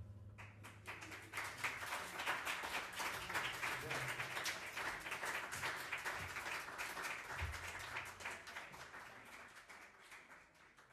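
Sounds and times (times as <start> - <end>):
audience applauding: 0.4 - 10.9.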